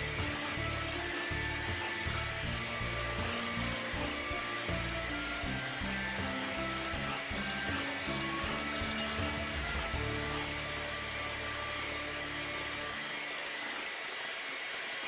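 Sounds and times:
background music: 0:00.0 - 0:13.5
electric hand mixer whirring: 0:00.0 - 0:15.0.

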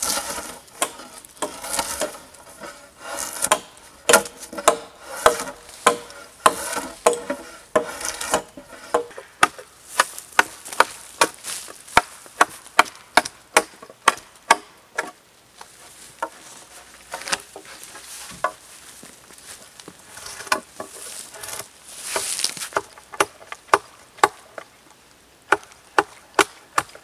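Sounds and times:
drawknife scraping bark off pole: 0:00.0 - 0:13.3, 0:16.2 - 0:18.6, 0:19.9 - 0:24.5.

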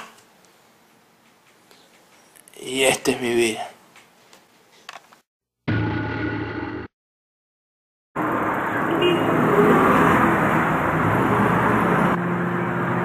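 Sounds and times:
city street traffic: 0:08.2 - 0:13.0
car horn toot: 0:08.8 - 0:09.4.

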